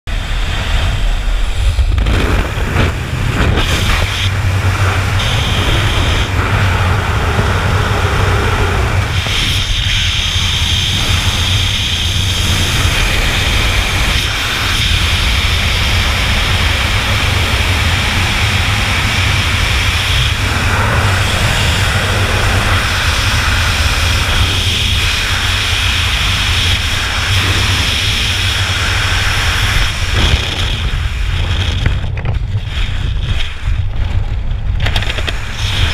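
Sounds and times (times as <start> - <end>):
plane engine: 0.1 - 35.9
wind roaring: 0.1 - 35.9.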